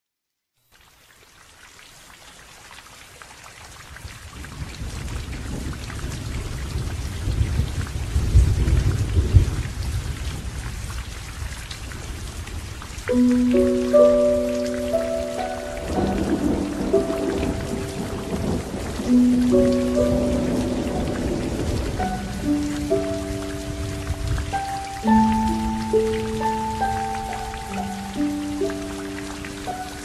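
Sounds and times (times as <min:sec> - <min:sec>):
heavy rain falling: 0:02.1 - 0:30.0
low rumble of thunder: 0:04.2 - 0:29.4.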